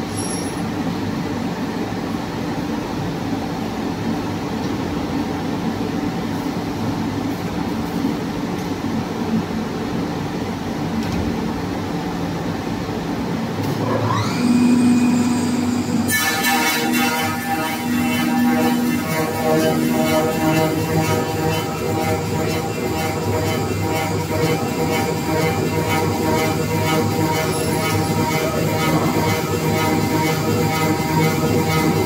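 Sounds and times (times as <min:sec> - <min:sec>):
motor whine: 0:13.7 - 0:32.0
wood lathe mechanical hum: 0:13.8 - 0:32.0.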